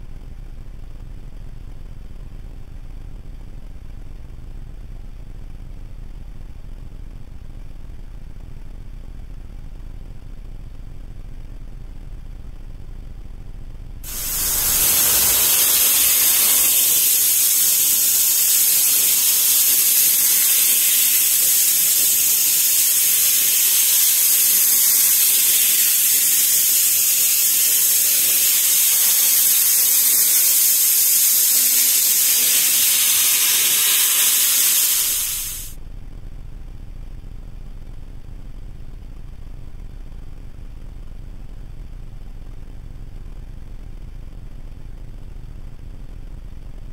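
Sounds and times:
loud steady hiss: 14.0s - 35.8s.

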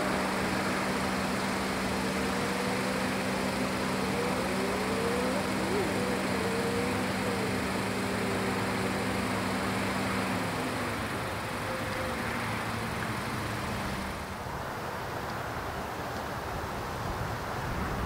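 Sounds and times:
faint low hum: 0.0s - 14.3s
jet engines hissing and rumbling: 0.0s - 17.6s.

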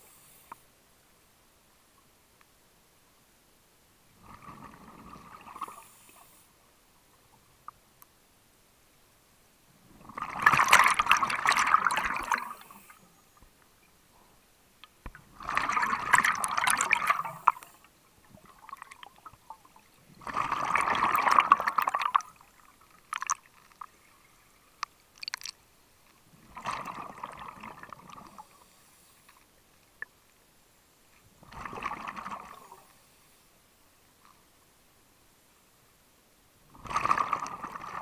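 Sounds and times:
regulator bubbles gurgling: 4.2s - 5.8s, 10.0s - 12.8s, 15.1s - 23.5s, 26.4s - 28.5s, 31.4s - 32.8s, 36.7s - 38.0s.

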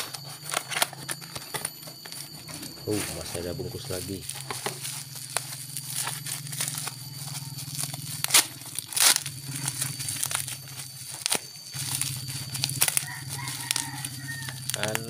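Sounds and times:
plastic wrapping crinkling: 0.0s - 15.0s
plastic ripping: 3.2s - 15.0s.

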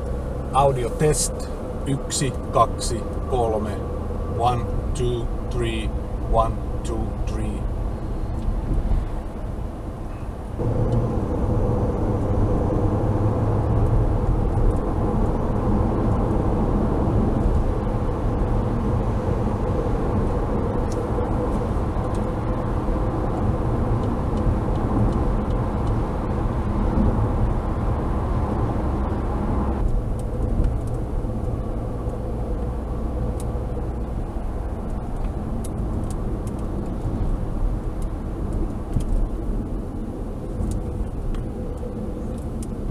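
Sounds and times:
car engine hum: 0.0s - 42.9s.

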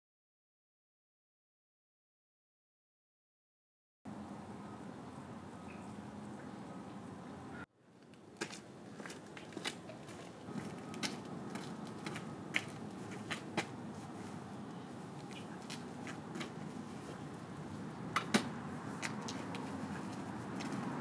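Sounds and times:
faint outdoor background: 4.1s - 21.0s
clicks and taps of bicycle handling: 18.1s - 19.7s.

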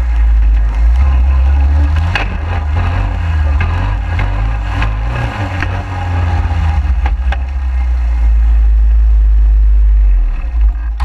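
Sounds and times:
sharp chassis knocks: 0.0s - 8.0s
quad engine rumble: 0.0s - 11.0s.

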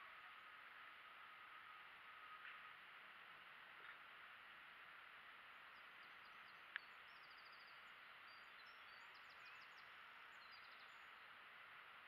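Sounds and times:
faint steady hiss: 0.0s - 12.0s
faint bird chirps: 1.0s - 2.9s, 5.6s - 12.0s.

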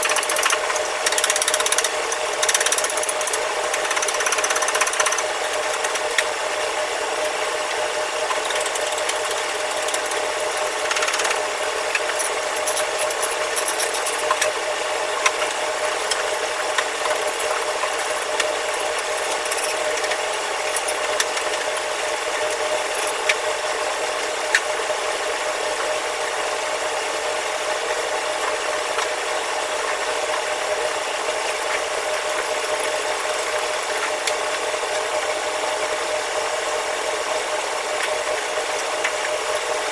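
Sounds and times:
tools clicking on metal parts: 0.0s - 6.3s, 8.3s - 14.5s, 15.2s - 16.4s, 17.0s - 21.8s
steady machine hum: 0.0s - 39.9s.

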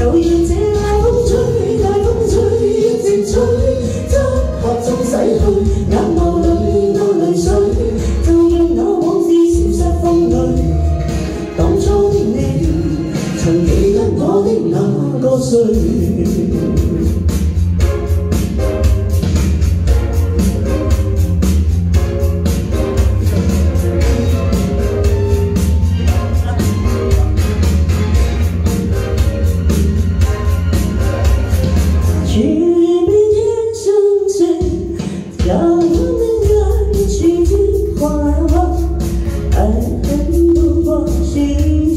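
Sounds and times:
man and woman singing duet: 0.0s - 17.4s, 32.2s - 41.9s
backing music with bass beat: 0.0s - 33.5s, 34.5s - 41.9s.

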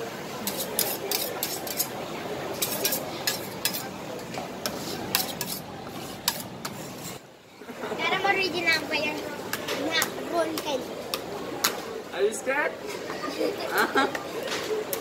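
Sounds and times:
metal spatulas scraping cold plate: 0.4s - 7.2s.

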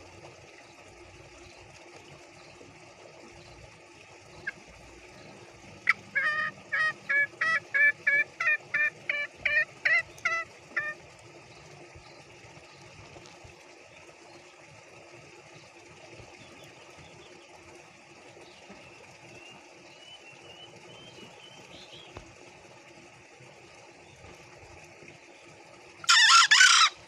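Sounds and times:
junglefowl cackle: 5.8s - 11.0s, 26.1s - 27.0s.

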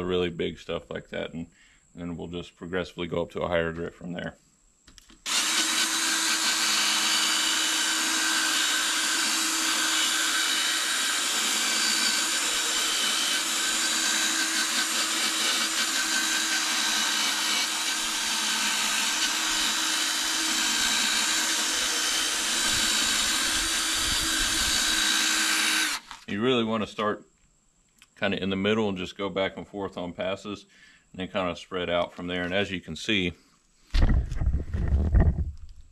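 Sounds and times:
drill motor whine: 5.3s - 26.2s.

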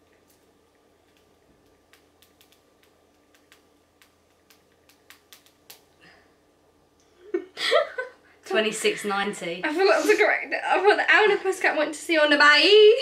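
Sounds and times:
fingers tapping touchscreen: 1.1s - 5.9s.

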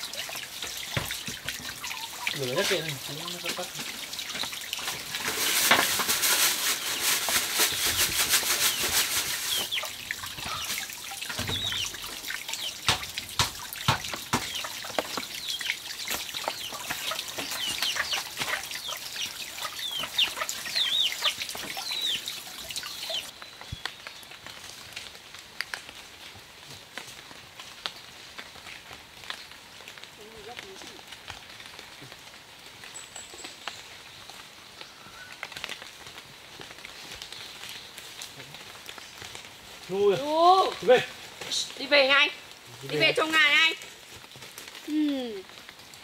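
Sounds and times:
sharp knocks and clatter: 0.6s - 1.7s, 11.2s - 12.0s, 12.8s - 15.2s
rapid crackling rush: 5.0s - 10.6s
chickens cheeping: 16.5s - 23.3s.

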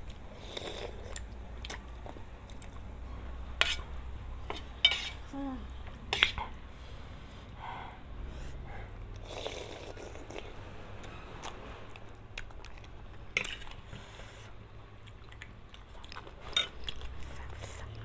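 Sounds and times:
noodles slurped and chewed: 0.3s - 2.9s, 9.1s - 18.0s
metal spoon clinking on plate: 4.8s - 5.2s.

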